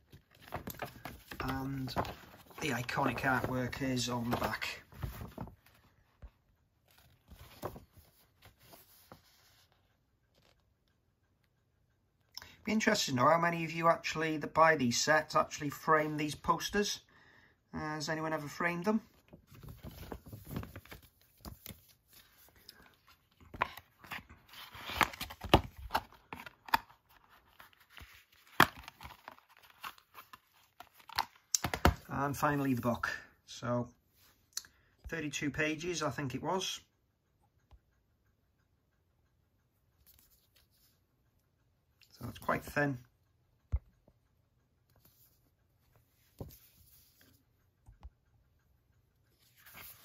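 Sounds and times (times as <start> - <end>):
paper rustling and crinkling: 0.0 - 10.6, 19.2 - 31.9, 49.4 - 50.0.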